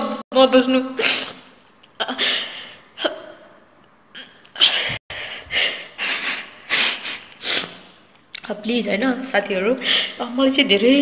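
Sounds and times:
woman sobbing and sniffing: 0:01.0 - 0:03.4, 0:04.2 - 0:08.0.

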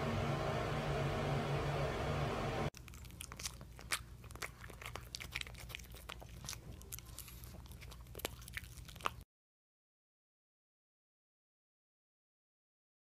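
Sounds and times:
dog lip-smacking and chewing: 0:02.8 - 0:09.2.

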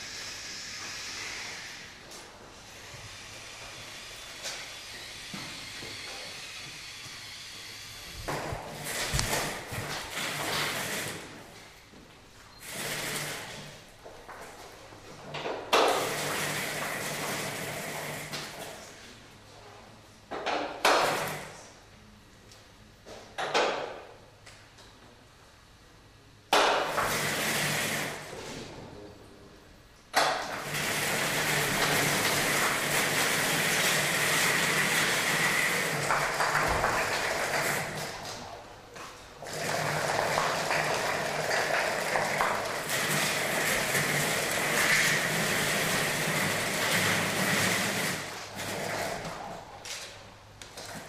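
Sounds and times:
robot electric motors whirring: 0:00.1 - 0:11.2.

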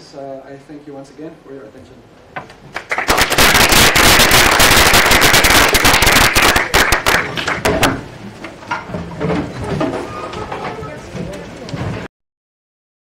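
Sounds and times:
audience clapping: 0:02.7 - 0:08.0.

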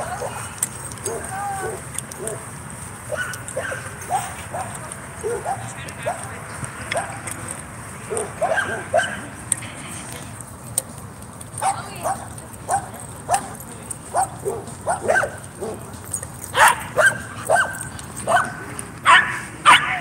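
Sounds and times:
dog barking: 0:01.0 - 0:02.4, 0:03.1 - 0:06.3, 0:08.1 - 0:09.2, 0:14.1 - 0:15.9, 0:16.6 - 0:20.0.

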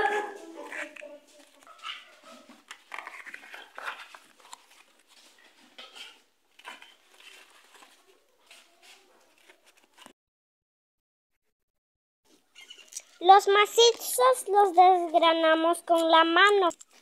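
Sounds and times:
corn husks rustling and tearing: 0:02.6 - 0:05.6, 0:06.5 - 0:10.1.

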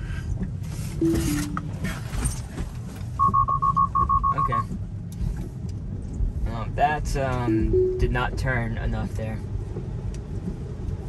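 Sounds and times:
road and rain noise: 0:00.0 - 0:11.0
short high beeps: 0:01.0 - 0:02.0, 0:03.2 - 0:04.6, 0:07.5 - 0:08.2
two-note electronic chime: 0:01.0 - 0:02.3, 0:07.5 - 0:08.2.

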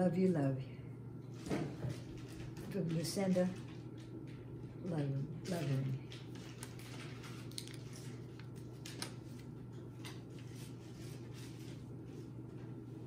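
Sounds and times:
steady low hum: 0:00.0 - 0:13.0
packaging rustling and clicking: 0:06.2 - 0:09.2.

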